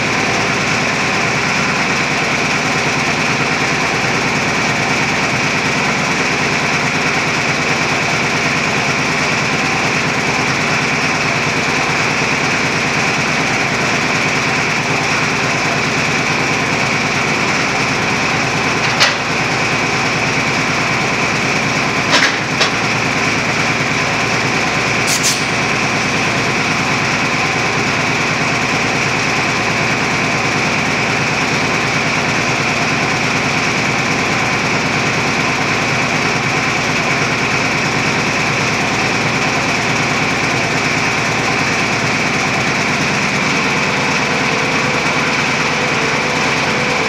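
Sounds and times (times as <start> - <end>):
roof-bolting rig running: 0.0 - 47.0
sharp click: 25.1 - 25.5.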